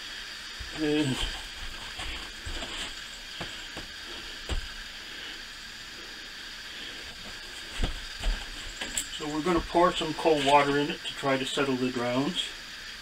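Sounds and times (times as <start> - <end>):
steady hiss: 0.0 - 13.0.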